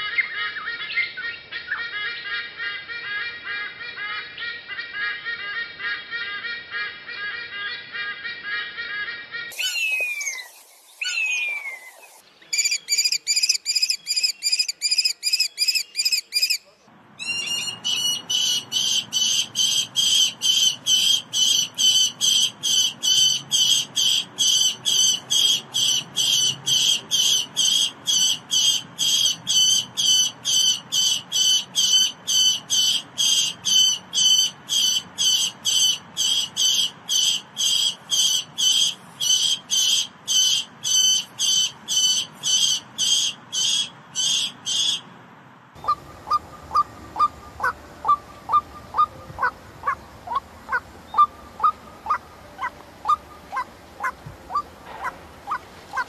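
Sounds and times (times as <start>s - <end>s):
falcon calling: 17.2s - 45.0s, 45.8s - 56.0s.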